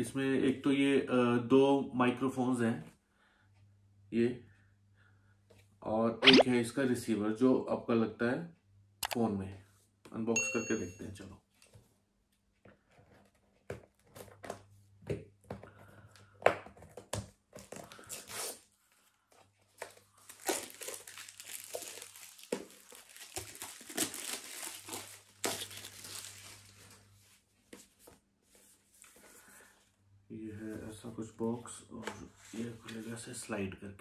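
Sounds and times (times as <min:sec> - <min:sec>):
wrapping crinkling and tearing: 0:19.7 - 0:27.0.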